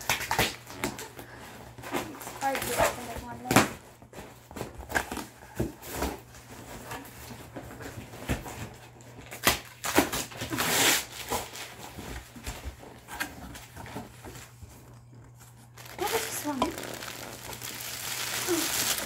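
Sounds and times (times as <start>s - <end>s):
knife cutting packing tape: 9.2s - 11.7s.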